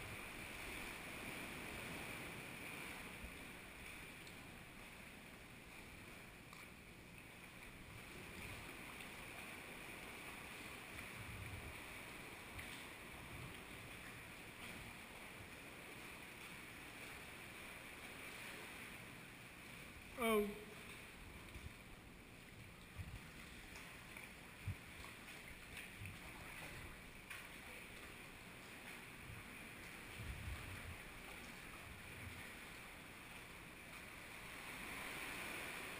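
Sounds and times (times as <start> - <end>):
water from kayak paddling: 0.0 - 35.9
paddle ticks: 3.8 - 4.5, 6.4 - 17.2, 20.8 - 34.1.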